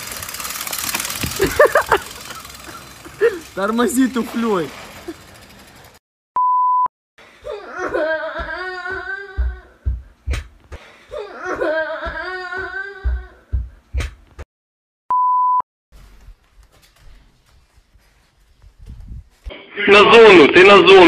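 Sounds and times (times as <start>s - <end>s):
steady beep: 6.4s - 6.9s.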